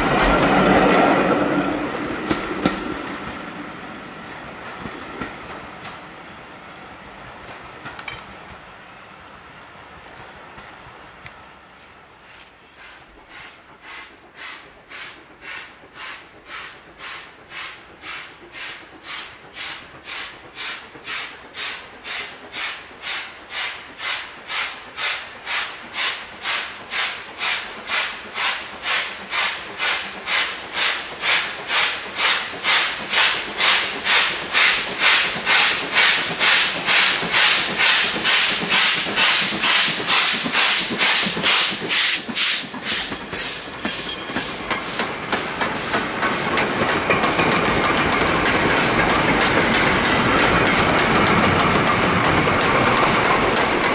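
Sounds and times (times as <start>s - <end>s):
steam locomotive exhaust beats: 10.1s - 53.9s.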